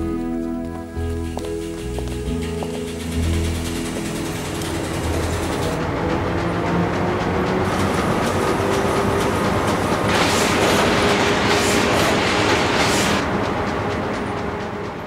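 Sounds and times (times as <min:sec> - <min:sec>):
printing press clatter: 0:01.6 - 0:15.0
hissing rush: 0:07.6 - 0:13.3.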